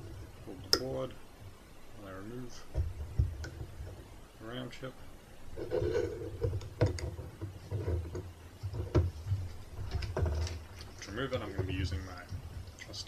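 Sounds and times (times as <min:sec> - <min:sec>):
sharp clicks and knocks: 0:02.7 - 0:04.2, 0:05.7 - 0:13.0
metal rubbing and scraping: 0:05.5 - 0:13.0.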